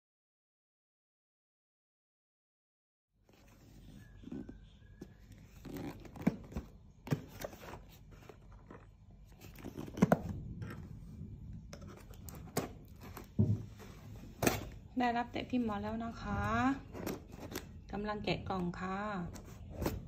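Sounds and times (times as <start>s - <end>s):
cardboard boxes scraping and rustling: 3.3s - 10.9s.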